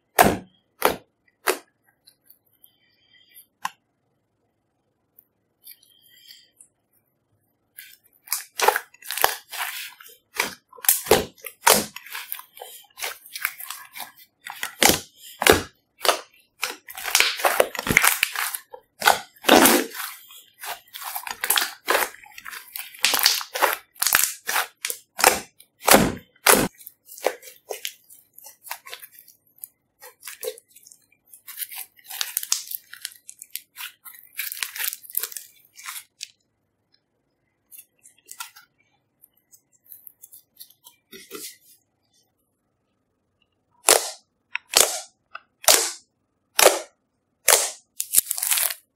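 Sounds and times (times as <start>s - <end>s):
slime wet pops and crackles: 23.0s - 26.7s.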